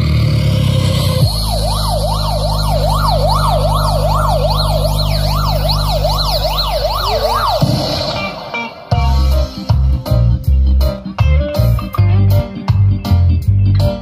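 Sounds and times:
siren sweeping up and down: 0.0 - 9.7
steady low drone: 0.0 - 10.9.

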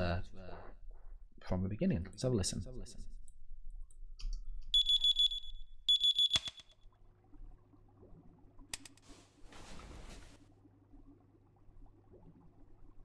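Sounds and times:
electronic alarm clock beeping: 4.8 - 6.7.

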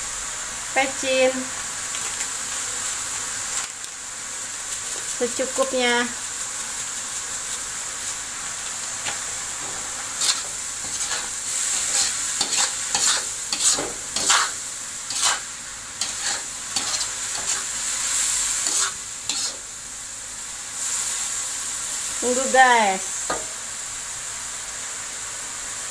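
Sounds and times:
mushrooms sizzling in a wok: 0.0 - 25.9
metal spatula scraping pan: 10.2 - 17.7, 18.6 - 19.7.

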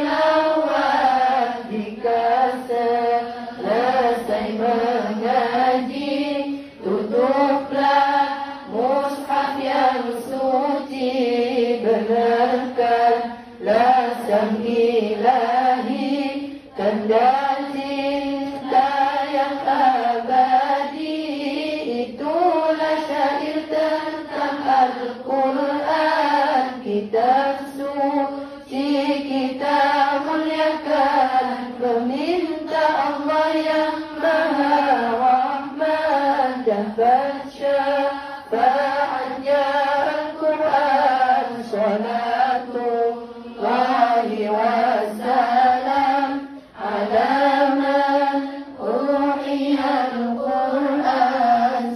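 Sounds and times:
woman singing into a microphone: 0.0 - 51.9.

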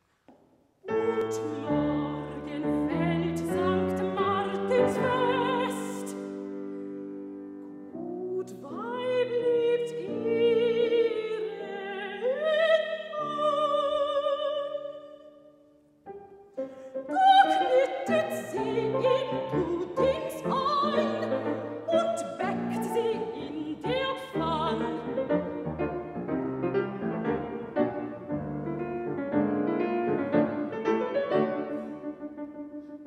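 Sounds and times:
grand piano accompaniment: 0.8 - 14.9, 16.0 - 33.0
soprano singing with vibrato: 0.9 - 6.4, 8.0 - 15.6, 17.0 - 25.7.

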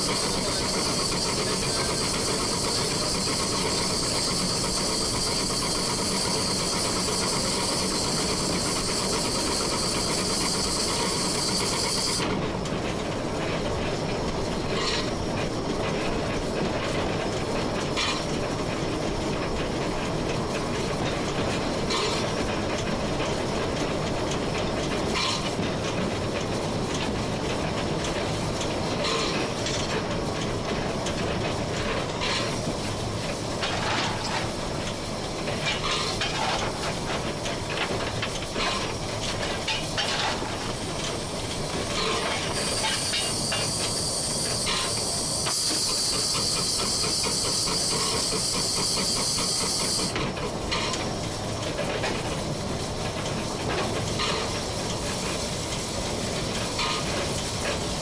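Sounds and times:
loud steam hiss: 0.0 - 12.5, 31.5 - 58.0
steam locomotive rumble: 0.0 - 58.0
wheel clicks over rail joints: 0.0 - 58.0.

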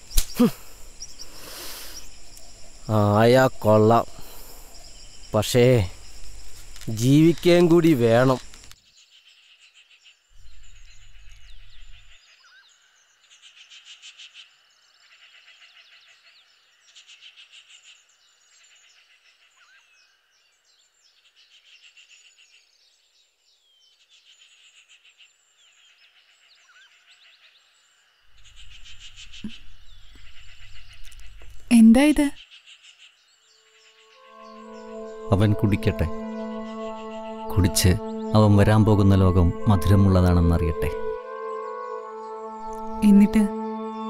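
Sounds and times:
frogs trilling: 0.0 - 8.8
low hum: 33.9 - 44.0.

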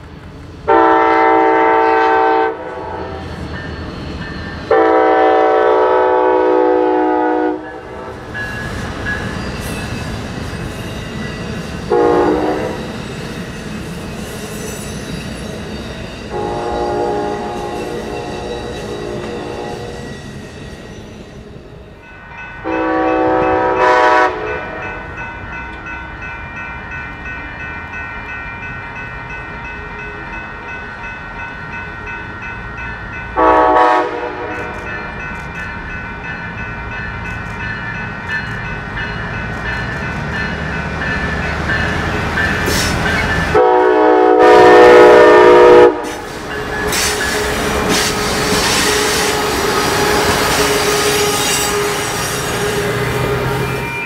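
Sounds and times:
train wheels rumbling on rails: 0.0 - 54.0
locomotive horn blast: 0.7 - 3.3, 4.7 - 8.3, 11.9 - 12.8, 16.3 - 20.1, 22.6 - 25.0, 33.4 - 34.8, 43.5 - 46.2, 47.1 - 54.0.

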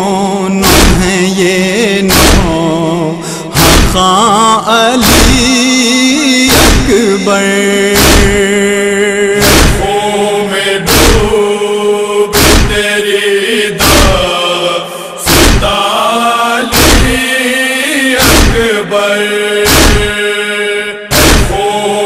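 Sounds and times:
man chanting a lament: 0.0 - 22.0
chest-beating thuds: 0.6 - 1.1, 2.1 - 2.6, 3.5 - 4.2, 5.0 - 5.5, 6.5 - 7.0, 8.0 - 8.5, 9.4 - 9.9, 10.9 - 11.4, 12.3 - 12.9, 13.8 - 14.3, 15.2 - 15.8, 16.7 - 17.2, 18.2 - 18.7, 19.6 - 20.2, 21.1 - 21.7.

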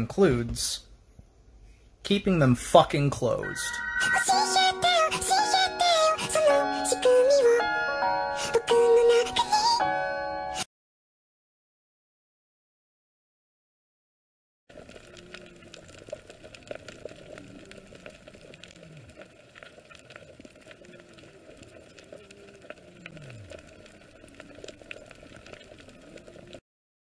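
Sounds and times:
underwater crackle of clicks: 14.7 - 26.6.

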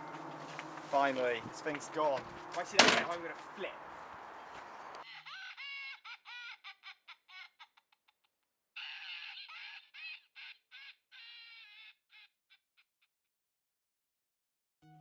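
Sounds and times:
high-pitched cackling call: 5.0 - 7.8, 8.8 - 12.3.

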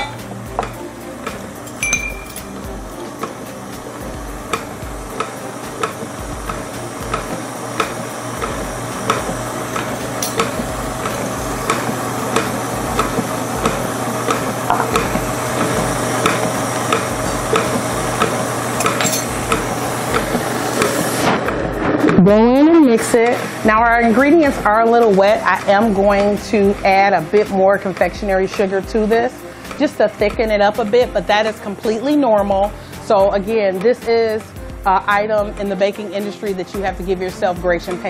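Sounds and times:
mixer beater clicking: 2.1 - 22.2
stand mixer motor hum: 2.4 - 22.2.

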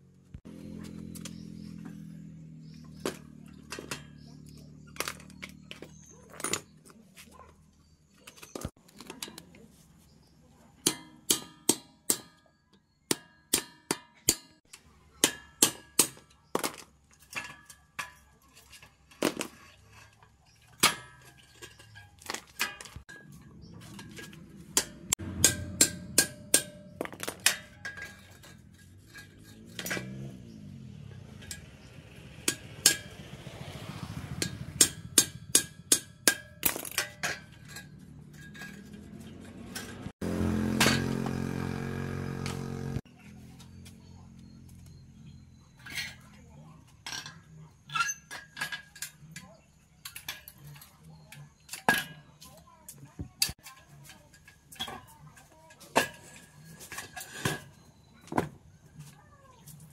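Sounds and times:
hammer striking metal: 10.8 - 12.5, 13.1 - 14.6, 24.7 - 28.5, 31.3 - 33.3, 34.4 - 41.3.

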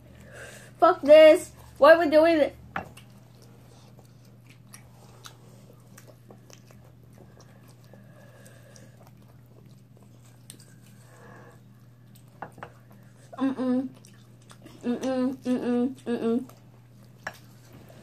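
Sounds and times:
steady low hum: 0.0 - 18.0
biting and chewing chicken wings: 2.9 - 14.8.

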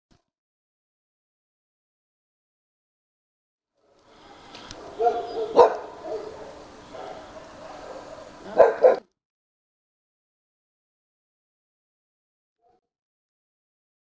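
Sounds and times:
small dog barking: 4.2 - 9.1.

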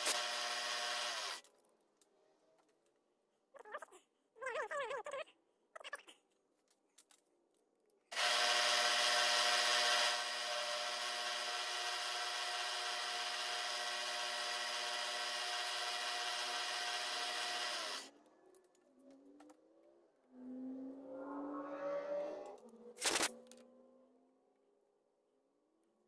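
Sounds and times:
metal cutting noise: 0.0 - 1.4, 8.1 - 18.1
milling machine whine: 8.1 - 18.1.

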